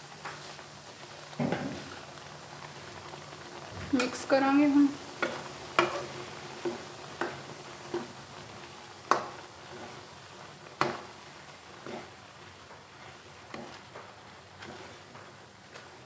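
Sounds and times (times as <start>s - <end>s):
ghee sizzling: 0.0s - 16.0s
metal spatula scraping a pan: 5.2s - 8.2s, 9.1s - 10.1s, 11.8s - 12.2s, 14.6s - 15.2s.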